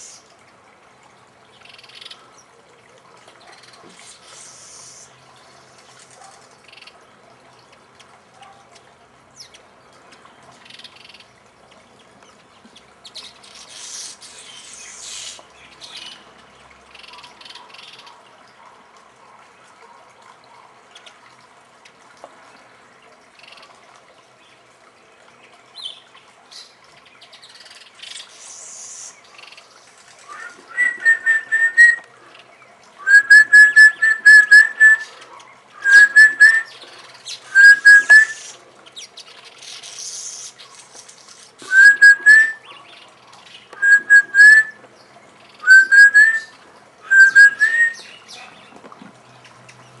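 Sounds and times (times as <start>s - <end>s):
bird singing whistled notes: 30.3s - 32.0s, 33.0s - 35.1s, 35.8s - 36.8s, 37.5s - 38.5s, 41.6s - 42.7s, 43.8s - 44.8s, 45.6s - 46.5s, 47.1s - 48.2s.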